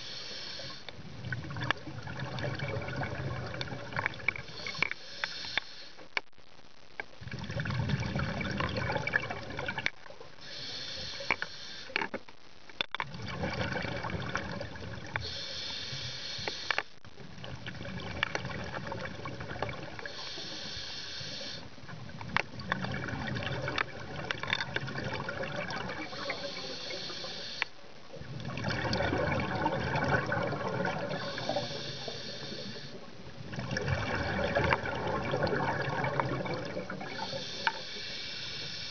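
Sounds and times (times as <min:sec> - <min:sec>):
regulator breathing underwater: 0:00.0 - 0:00.9, 0:04.4 - 0:06.0, 0:10.4 - 0:12.0, 0:15.2 - 0:16.9, 0:20.0 - 0:21.7, 0:26.0 - 0:27.8, 0:31.0 - 0:33.0, 0:37.0 - 0:38.9.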